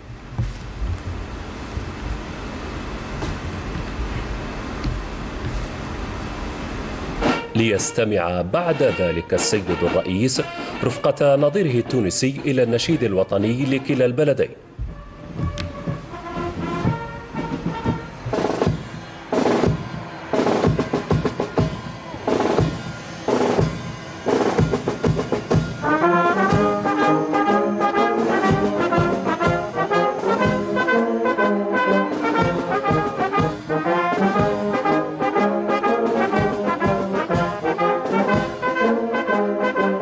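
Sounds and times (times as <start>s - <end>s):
brass band playing: 7.2s - 40.0s
drum and cymbal strikes: 14.8s - 31.0s, 32.1s - 35.4s, 36.0s - 38.9s.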